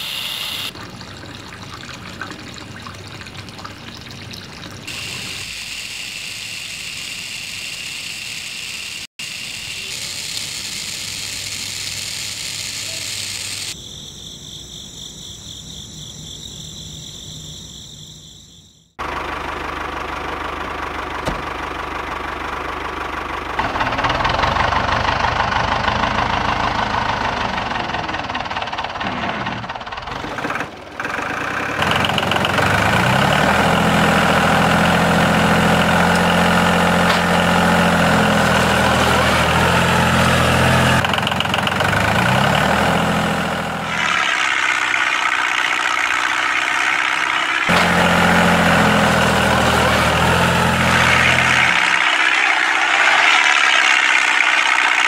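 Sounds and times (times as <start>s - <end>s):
small electric motor running: 0.0s - 0.7s, 4.9s - 13.8s.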